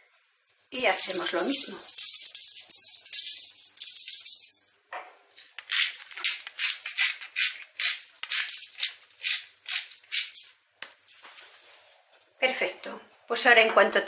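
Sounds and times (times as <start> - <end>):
seasoning shaker rattling: 0.5 - 4.8, 5.4 - 11.2.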